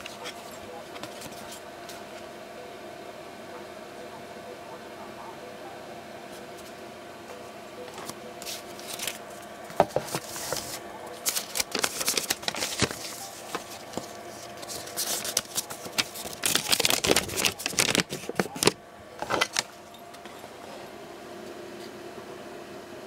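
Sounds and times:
faint steady hum: 0:00.0 - 0:23.0
plastic packaging crinkling: 0:08.0 - 0:19.8.

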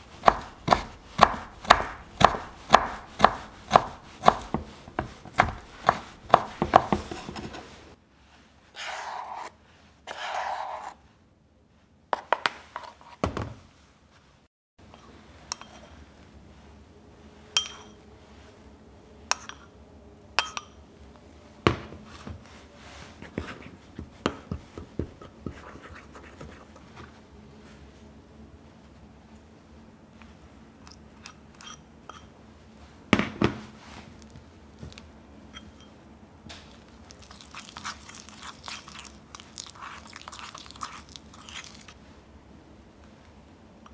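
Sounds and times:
knife chopping on wooden board: 0:00.2 - 0:07.6
spoon scraping and tapping: 0:14.9 - 0:15.9, 0:30.8 - 0:32.3
metal spoon clinking ceramic bowl: 0:15.5 - 0:15.9, 0:17.6 - 0:18.0, 0:19.3 - 0:19.7, 0:20.4 - 0:20.8, 0:31.2 - 0:32.3.

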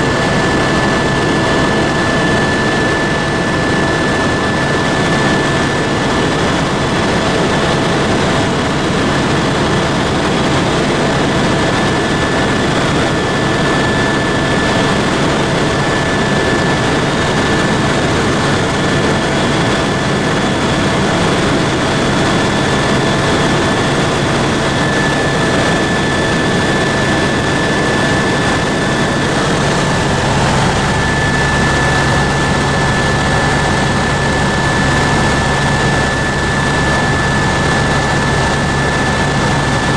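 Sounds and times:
helicopter cabin noise: 0:00.0 - 0:39.9
high whine: 0:23.3 - 0:39.9.

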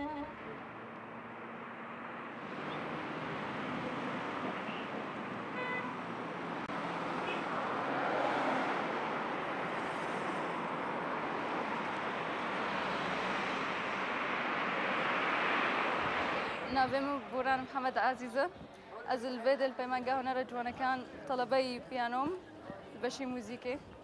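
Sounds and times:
passing cars: 0:00.0 - 0:19.1
car horn toot: 0:05.6 - 0:06.0.

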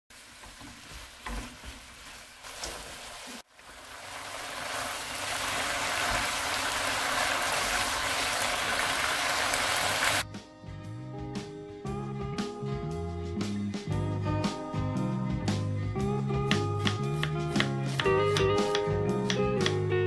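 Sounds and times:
meat sizzling in a frying pan: 0:00.1 - 0:10.2.

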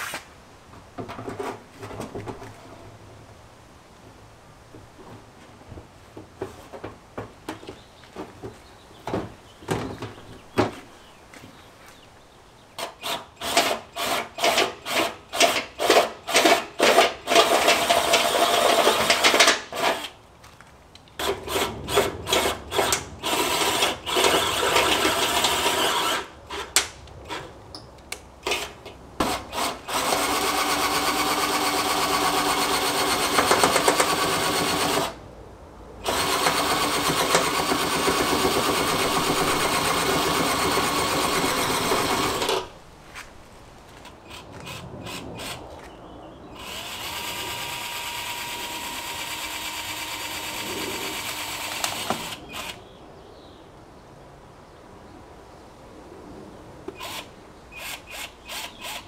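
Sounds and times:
cordless drill boring metal: 0:12.8 - 0:20.1, 0:21.2 - 0:27.4, 0:28.5 - 0:35.2, 0:36.0 - 0:42.7, 0:46.6 - 0:52.8, 0:57.0 - 0:59.0.

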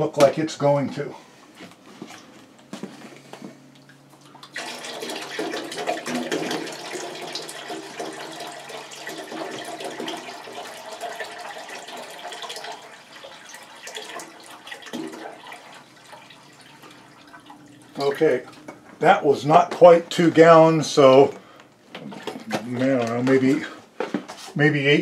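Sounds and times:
water pouring into metal tank: 0:04.4 - 0:18.6.

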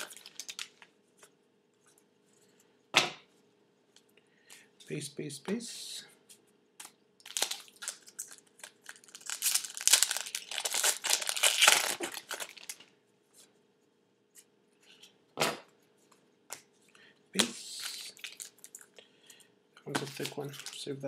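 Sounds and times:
foil wrapper tearing and crinkling: 0:00.0 - 0:00.8, 0:07.2 - 0:12.8, 0:17.7 - 0:18.9, 0:20.0 - 0:20.9.

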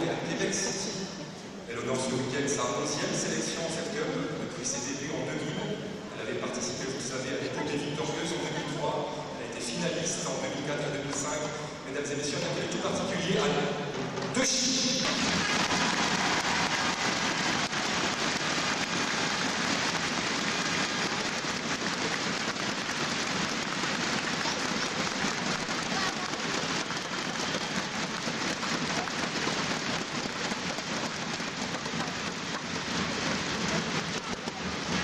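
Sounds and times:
audience applauding: 0:15.0 - 0:35.0.

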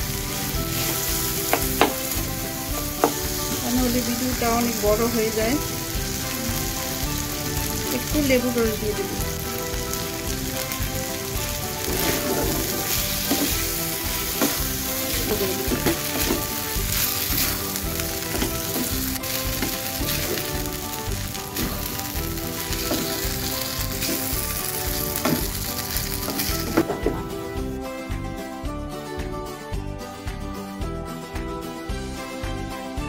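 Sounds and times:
rice sizzling in a pan: 0:00.0 - 0:27.2
wooden spatula scraping and knocking: 0:11.8 - 0:27.3.

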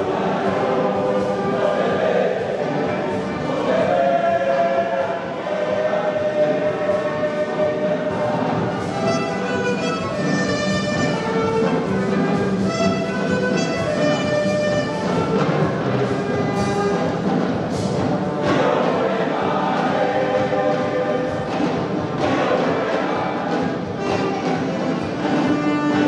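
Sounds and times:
boys' choir singing: 0:00.0 - 0:26.0
drum kit hits: 0:08.8 - 0:26.0.

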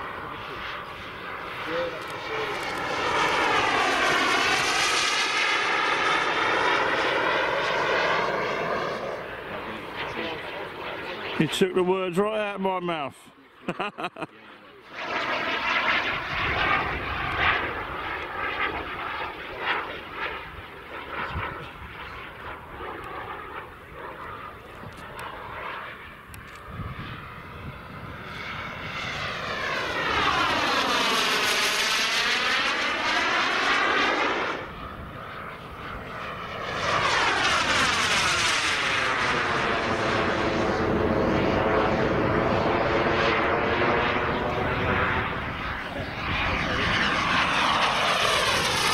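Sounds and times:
model jet turbine passing: 0:00.0 - 0:13.1, 0:14.8 - 0:48.9.

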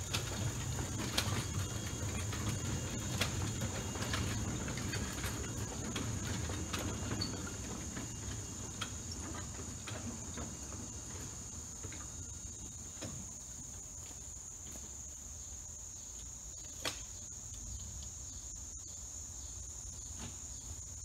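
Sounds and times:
train wheels rumbling on rails: 0:00.0 - 0:13.9
wheels clicking over rail joints: 0:00.0 - 0:15.1
high insect drone: 0:00.0 - 0:21.0.

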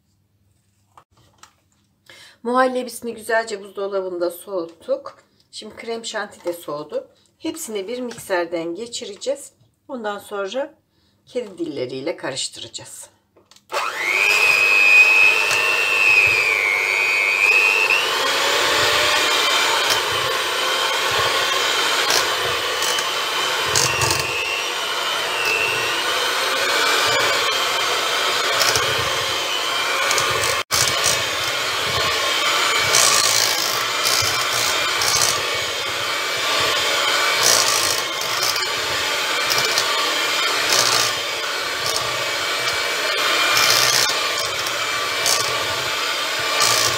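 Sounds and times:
electric hand mixer whine: 0:13.7 - 0:46.9.

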